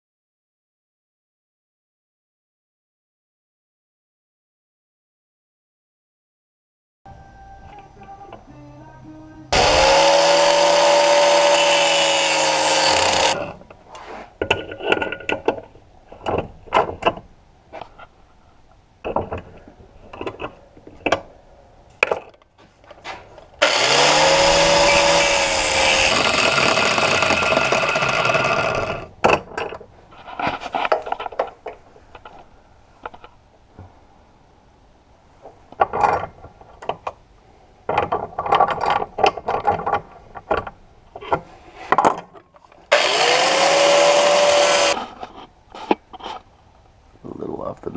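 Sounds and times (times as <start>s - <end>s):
angle grinder grinding: 9.5s - 13.6s, 23.6s - 29.1s, 42.9s - 45.2s
metal parts clicking and knocking: 37.9s - 41.4s.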